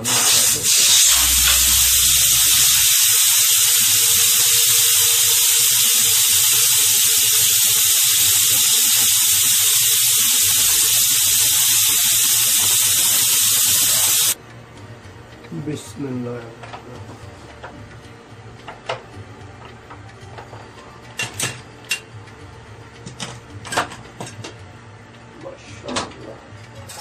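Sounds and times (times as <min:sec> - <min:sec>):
pressure cooker venting steam: 0:00.0 - 0:14.4.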